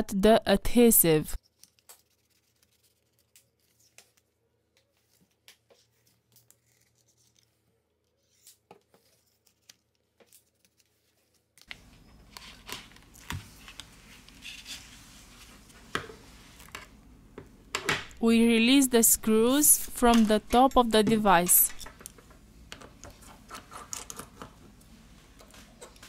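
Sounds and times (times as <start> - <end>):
steady background hum: 11.8 - 26.0.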